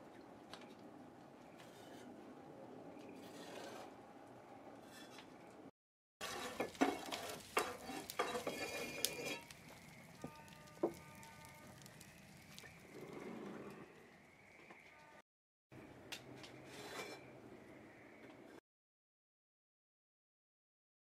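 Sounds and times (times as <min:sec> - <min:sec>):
wood fire crackling and popping: 0:06.2 - 0:13.2.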